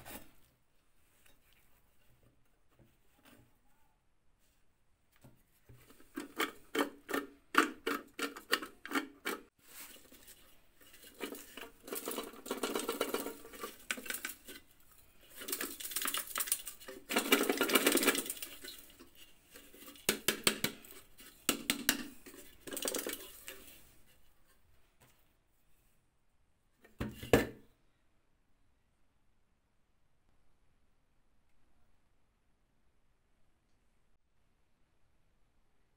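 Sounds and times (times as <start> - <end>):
rattling and scraping of stove: 5.8 - 24.2.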